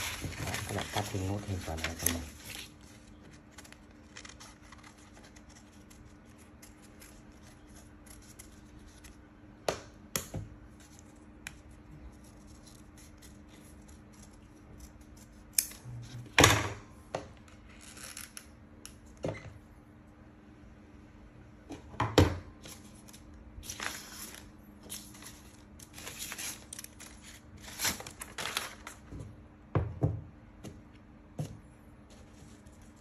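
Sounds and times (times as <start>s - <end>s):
paper handling: 0.0s - 9.2s, 22.6s - 29.2s
scissors snipping paper: 3.6s - 9.2s.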